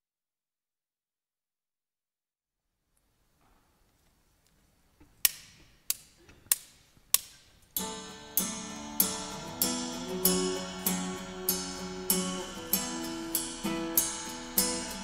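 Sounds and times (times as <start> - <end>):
sharp count-in clicks: 5.2 - 11.6
acoustic guitar strumming: 7.8 - 15.0.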